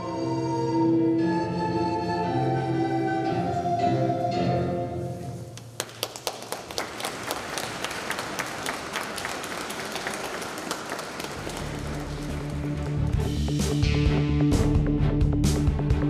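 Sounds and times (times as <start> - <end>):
music: 0.0 - 5.7, 11.2 - 16.0
audience applauding: 5.6 - 13.4.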